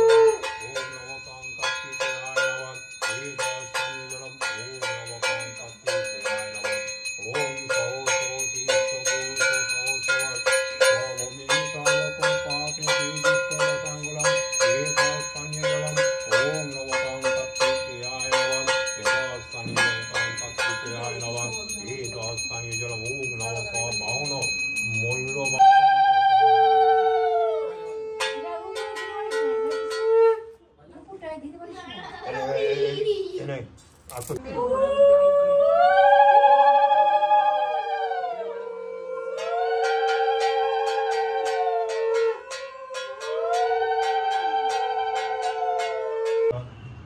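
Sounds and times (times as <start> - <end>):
hand bell ringing: 0.0 - 26.4, 27.8 - 30.4, 34.0 - 34.4, 39.4 - 46.5
man chanting: 0.0 - 30.4, 34.1 - 47.0.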